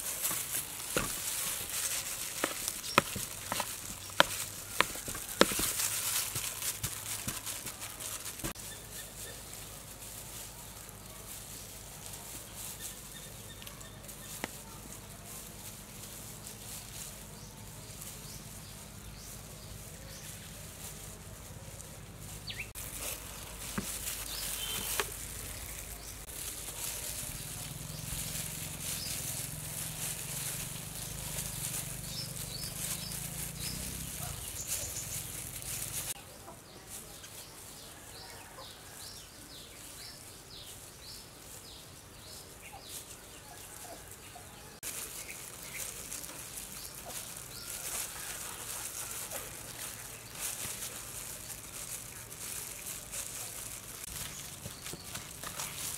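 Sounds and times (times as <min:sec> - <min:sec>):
gloved hands rustling: 0:00.0 - 0:36.2, 0:39.9 - 0:55.9
bird chirps: 0:24.2 - 0:26.3.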